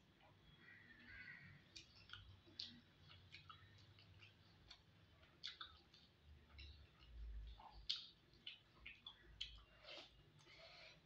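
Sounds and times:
wet clicks of fingers mixing rice: 0:00.0 - 0:10.6
chewing mouth sounds: 0:01.7 - 0:10.6.

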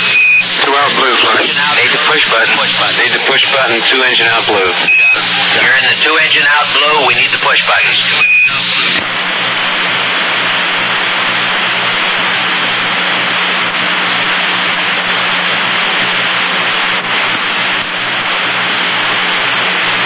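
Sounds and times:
short high beep: 0:00.0 - 0:00.5, 0:04.8 - 0:05.3, 0:08.2 - 0:08.6
low steady hum: 0:00.0 - 0:20.0
radio static hissing: 0:00.0 - 0:20.0.

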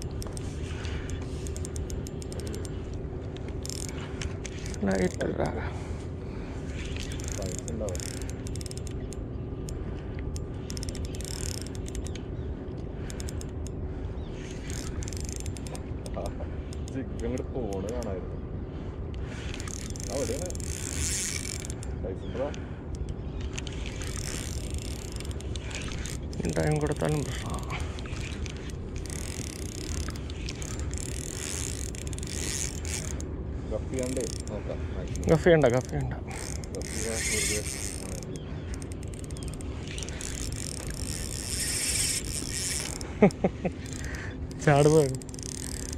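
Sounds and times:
fishing reel clicking: 0:00.0 - 0:05.5, 0:06.7 - 0:18.2, 0:19.1 - 0:33.3, 0:33.9 - 0:45.9.

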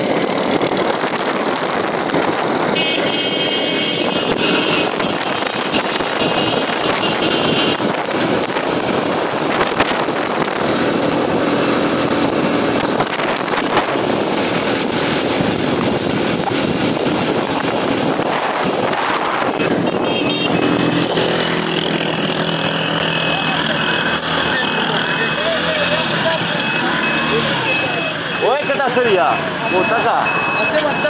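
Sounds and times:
wind rushing on microphone: 0:00.0 - 0:02.8, 0:04.0 - 0:22.2
motorcycle engine running: 0:00.0 - 0:28.4.

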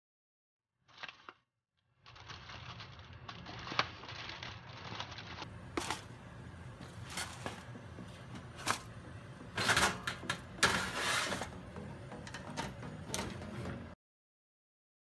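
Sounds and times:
foil scraping and crinkling: 0:02.0 - 0:06.2, 0:06.8 - 0:07.8, 0:10.6 - 0:11.6
steady low hum: 0:05.4 - 0:14.0.

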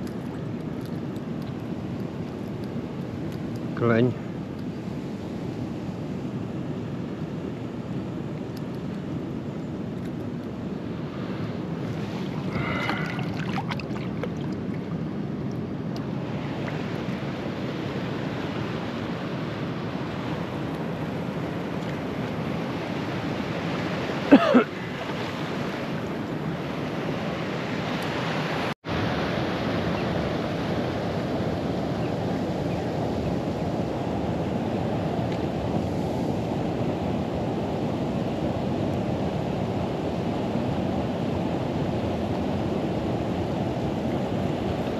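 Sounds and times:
wind on microphone: 0:00.0 - 0:44.9
flowing water: 0:11.5 - 0:15.2, 0:15.9 - 0:32.5.

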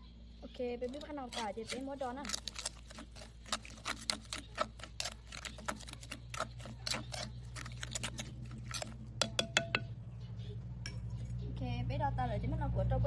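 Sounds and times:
spoon scraping bowl: 0:00.8 - 0:09.9.

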